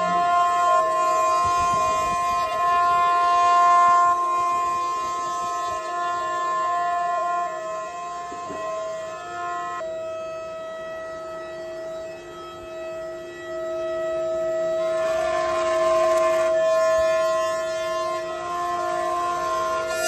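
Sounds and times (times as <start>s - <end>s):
router spindle whine: 14.8s - 20.0s.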